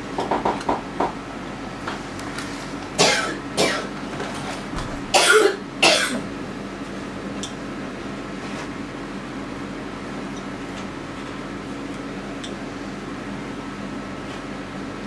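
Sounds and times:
person coughing: 3.0s - 3.9s, 5.1s - 6.3s.

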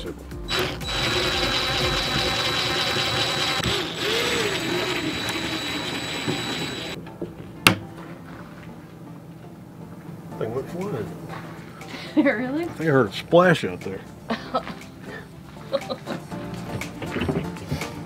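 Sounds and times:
power drill whining: 0.5s - 7.0s.

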